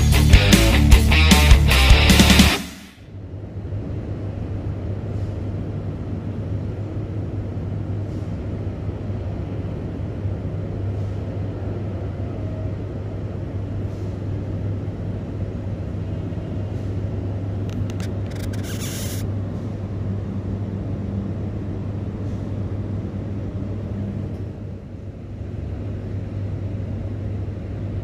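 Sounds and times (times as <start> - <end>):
air hiss: 18.4 - 19.2.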